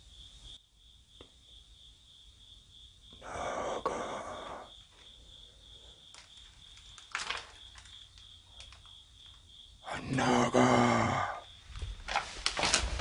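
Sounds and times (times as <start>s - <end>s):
cricket chirping: 0.0s - 13.0s
short rustle: 11.7s - 13.0s.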